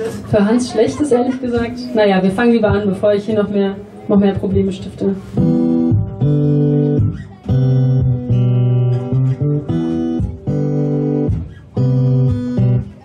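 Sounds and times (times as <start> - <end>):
acoustic guitar chords: 3.8 - 13.0
electric bass: 5.4 - 13.0.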